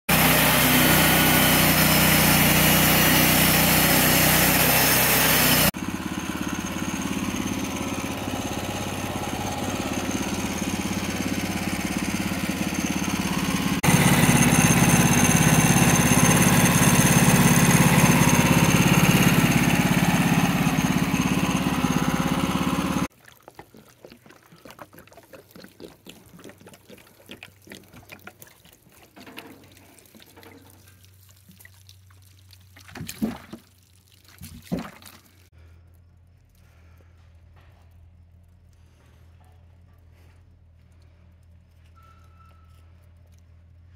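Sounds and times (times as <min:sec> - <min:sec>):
petrol engine running under load: 0:00.1 - 0:23.1.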